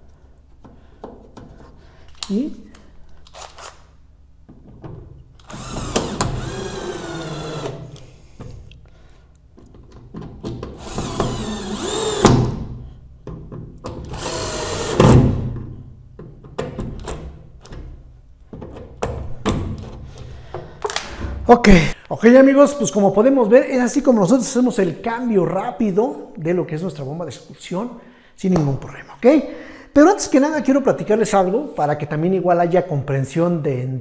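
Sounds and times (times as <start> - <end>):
power drill motor whine: 5.4 - 7.9, 10.8 - 12.3, 14.1 - 15.0.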